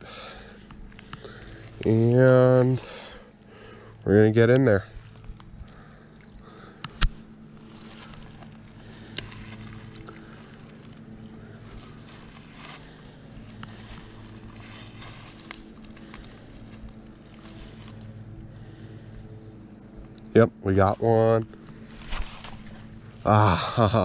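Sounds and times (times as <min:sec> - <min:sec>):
low drone: 0:00.0 - 0:24.0
light clicks: 0:04.5 - 0:07.3.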